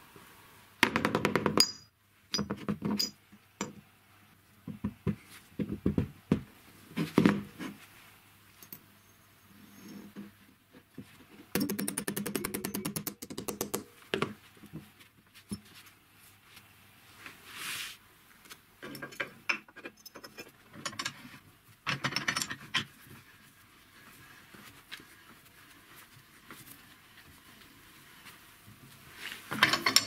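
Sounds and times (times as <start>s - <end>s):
metal pipes knocking and clinking: 1.4s - 3.8s, 29.6s - 30.0s.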